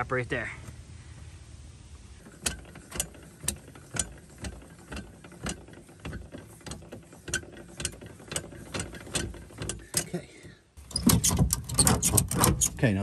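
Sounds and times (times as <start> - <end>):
ratchet clicking: 2.2 - 10.2, 10.8 - 12.8.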